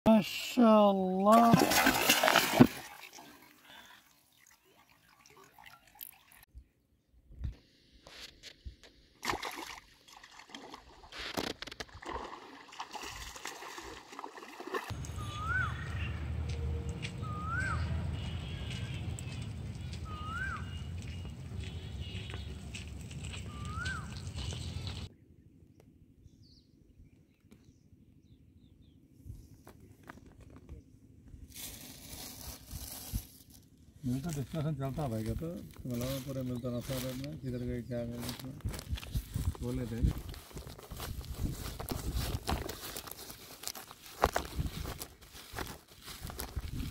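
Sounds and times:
river water splashing: 1.2 - 6.4, 9.2 - 11.1, 11.9 - 15.5
bird whistled call: 15.1 - 16.2, 17.2 - 18.8, 19.9 - 21.2, 23.4 - 24.2
plastic sack rustling: 31.5 - 33.6, 40.4 - 46.9.

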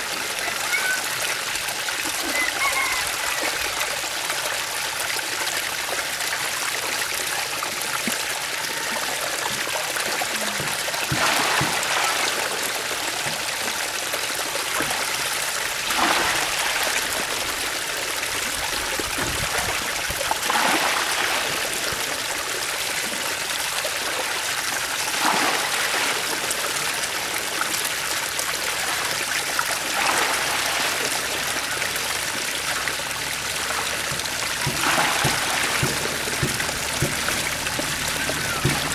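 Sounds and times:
water splashing into basket: 7.9 - 24.1, 24.7 - 38.9.

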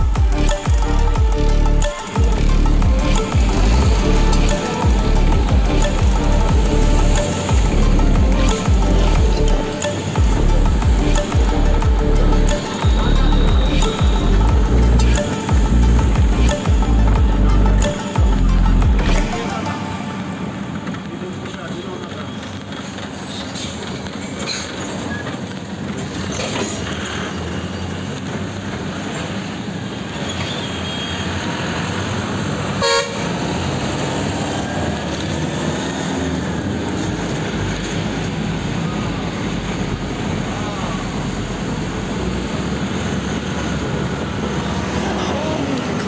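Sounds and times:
bus engine and road noise: 0.0 - 46.0
vehicle horn honk: 32.8 - 33.3.

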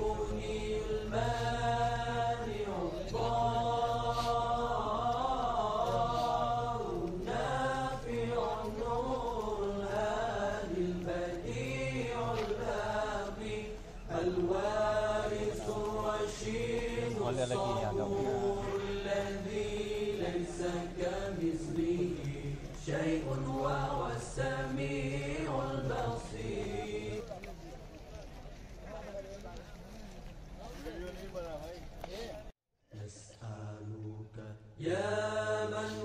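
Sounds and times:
man chanting: 17.0 - 19.2.

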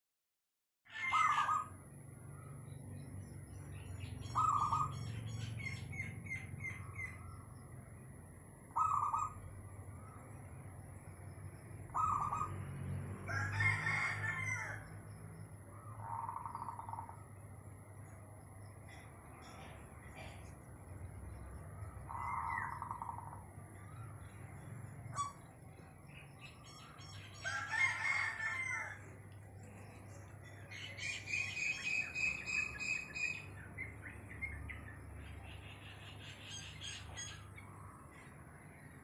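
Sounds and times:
rooster crowing: 0.9 - 1.7, 13.2 - 15.0, 27.0 - 29.3
birds calling and chirping: 0.9 - 39.0
steady low hum: 15.0 - 27.4.

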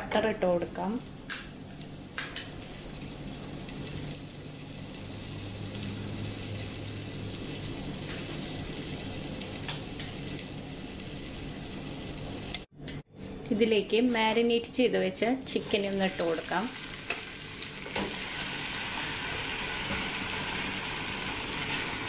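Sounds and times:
butter sizzling in a pan: 15.6 - 22.0.

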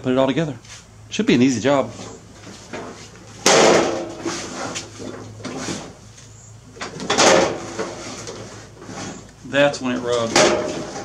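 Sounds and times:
tyre scraping against hood: 1.8 - 6.4, 7.0 - 11.0
mower hood dropping shut: 3.4 - 4.4, 6.8 - 8.0, 10.3 - 11.0.

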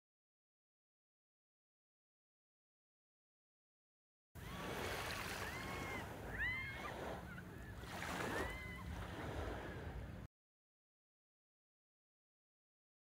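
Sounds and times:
small waves washing over sand: 4.4 - 10.2.

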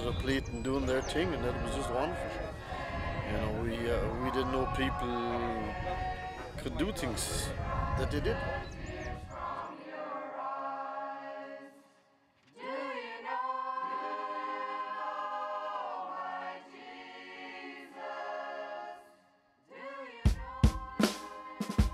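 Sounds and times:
choir singing a cappella: 0.0 - 21.9
drum kit hits: 20.3 - 21.9.

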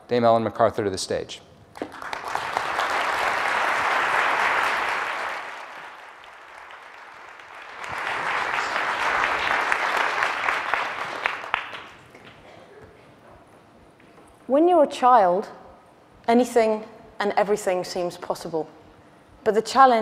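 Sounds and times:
audience applauding: 1.8 - 12.4.

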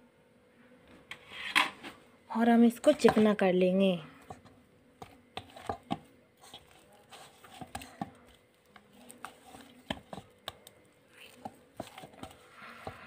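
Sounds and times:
dough squishing by hand: 4.1 - 13.0.

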